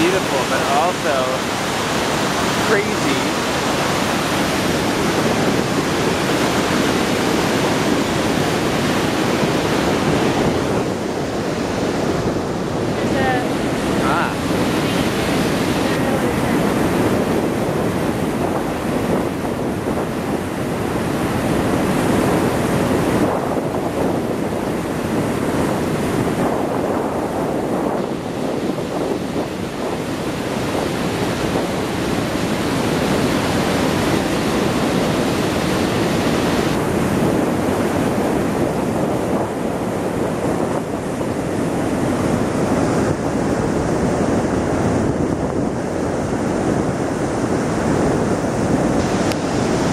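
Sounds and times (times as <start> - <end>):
river water rushing over rapids: 0.0 - 49.9.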